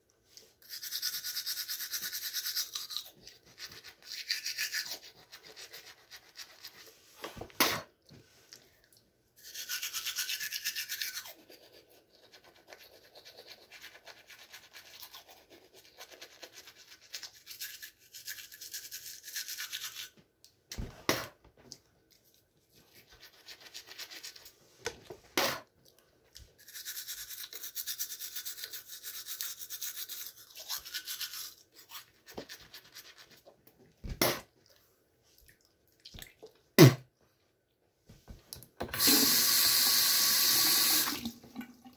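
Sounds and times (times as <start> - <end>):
toothbrush scrubbing teeth: 0.3 - 7.0, 9.4 - 20.2, 22.2 - 24.6, 26.4 - 33.6.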